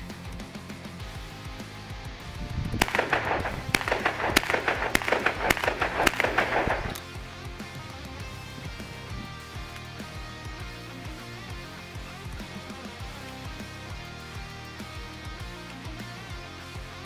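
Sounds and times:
background music: 0.0 - 17.0
shotgun shots: 2.8 - 7.1.

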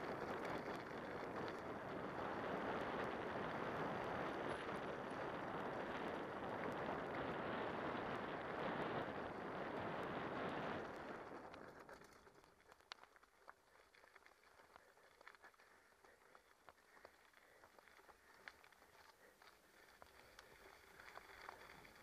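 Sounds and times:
small stone ticks: 0.0 - 3.5, 10.0 - 22.0
bike tyres crunching on gravel: 0.0 - 22.0.

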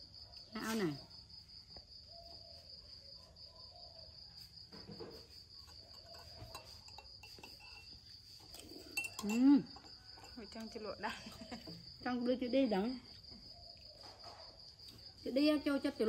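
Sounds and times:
high-pitched insect trill: 0.0 - 16.0.

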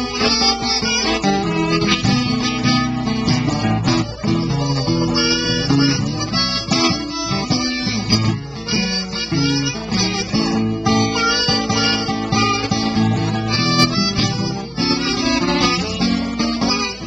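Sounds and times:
amplified blues harmonica: 0.0 - 17.0
guitar accompaniment: 0.0 - 17.0.

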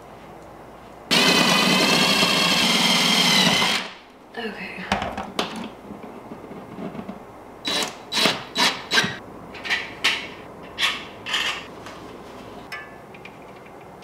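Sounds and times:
cordless drill driving screws: 1.1 - 3.9, 7.6 - 9.2.

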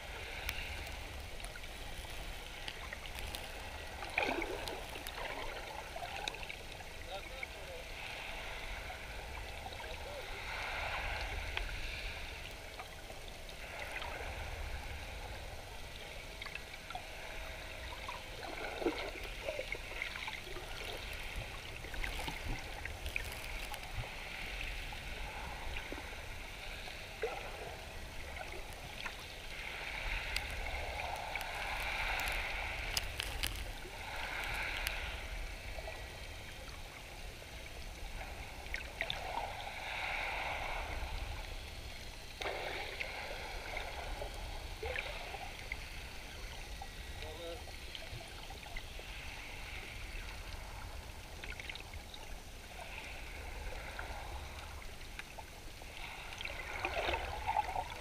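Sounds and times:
water gurgling underwater: 0.0 - 7.0
underwater rumble: 0.0 - 58.0.

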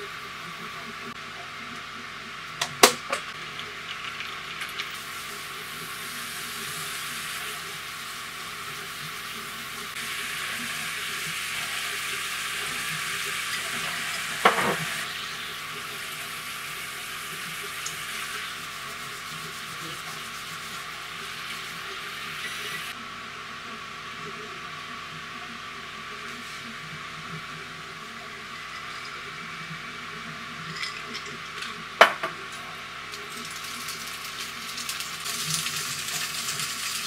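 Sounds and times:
sauce sizzling in a frying pan: 3.3 - 23.0, 33.2 - 37.0.

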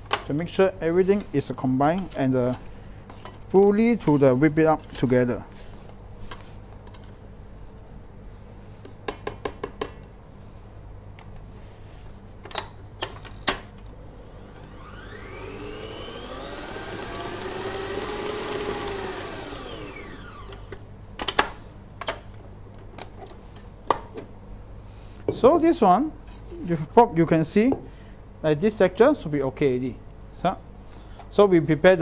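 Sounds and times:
stand mixer motor whining: 14.2 - 20.7.

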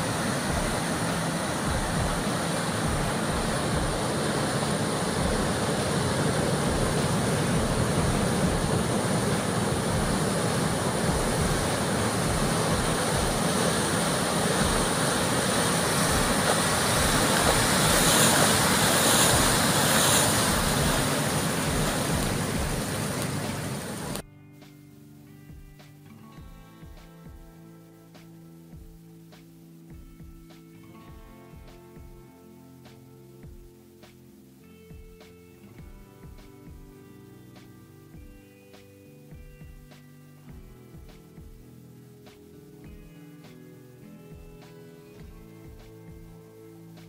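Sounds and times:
surf breaking on rocky shore: 0.0 - 24.2.

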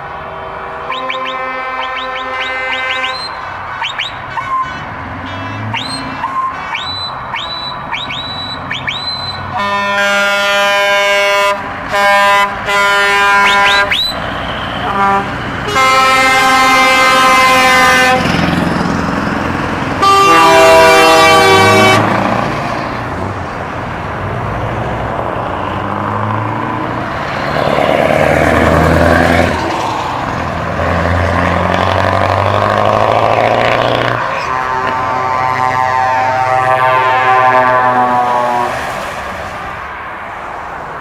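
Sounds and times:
truck air horns blasting: 0.3 - 18.6, 20.0 - 22.4, 31.6 - 39.1
diesel truck engine revving: 0.7 - 39.2.

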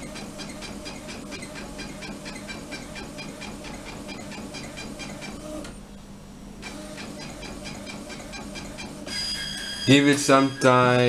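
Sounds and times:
print head clicking: 0.0 - 5.7, 6.6 - 9.2
printer motor hum: 0.0 - 5.9, 6.6 - 10.5.

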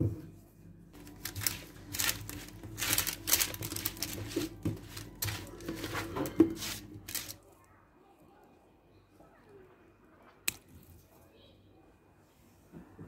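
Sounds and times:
rustling and crinkling: 0.9 - 7.6.

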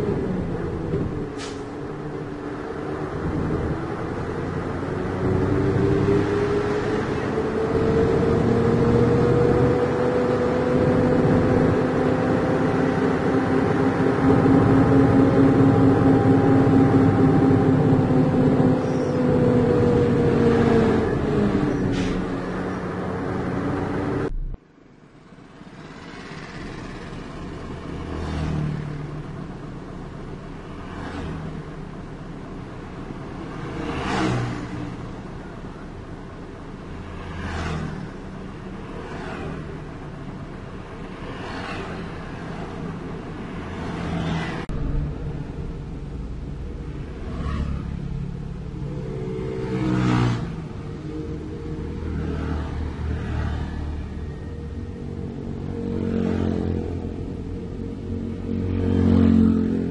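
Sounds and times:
bus passing: 0.0 - 59.9
trucks passing: 0.0 - 59.9
vehicle engine running: 24.2 - 28.0
motorcycles passing: 46.8 - 59.9.

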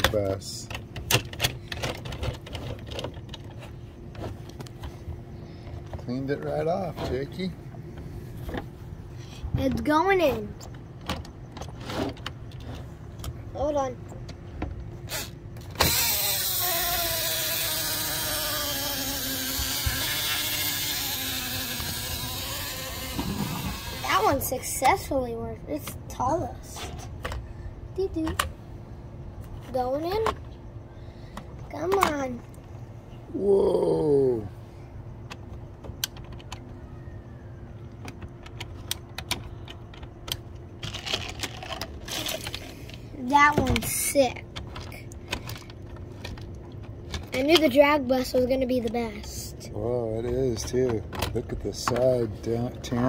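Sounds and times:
toy electric motor whirring: 15.0 - 25.1, 40.8 - 49.5.

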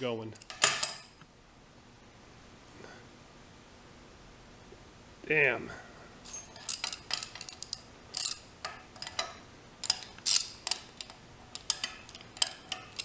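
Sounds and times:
wrenches clicking on steel table: 6.6 - 13.0.

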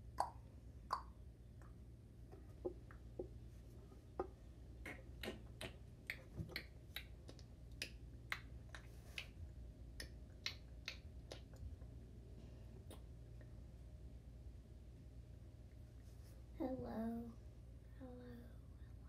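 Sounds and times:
low steady hum: 0.0 - 19.0.

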